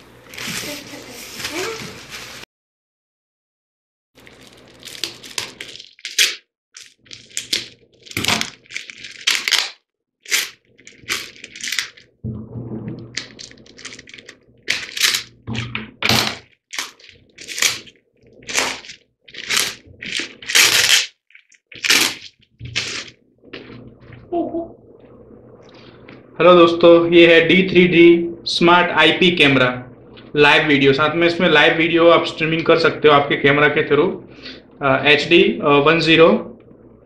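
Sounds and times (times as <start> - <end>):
bubble wrap crinkling: 0.0 - 2.4, 4.2 - 12.1, 13.1 - 23.9
packing tape ripping: 4.2 - 12.1, 13.2 - 23.2.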